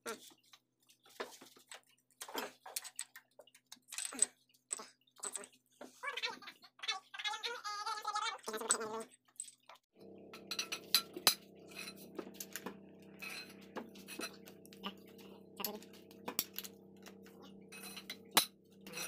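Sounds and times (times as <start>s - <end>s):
metal clinks and clicks: 8.7s - 19.0s
steady hum: 10.0s - 19.0s.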